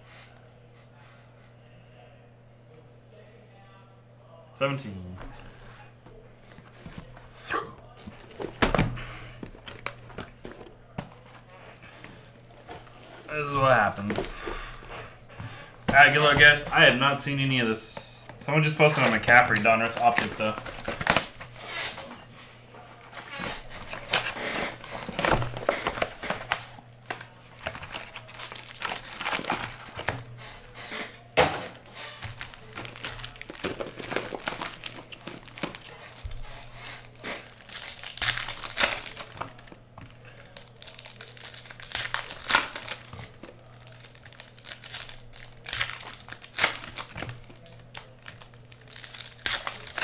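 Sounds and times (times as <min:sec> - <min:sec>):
foil wrappers crinkling: 0:05.2 - 0:50.0.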